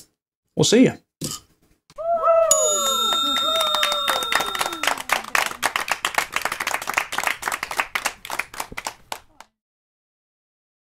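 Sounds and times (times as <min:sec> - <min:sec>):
bell-like ringing tone with swoop: 0:02.5 - 0:05.1
applause-like clapping: 0:02.6 - 0:09.6.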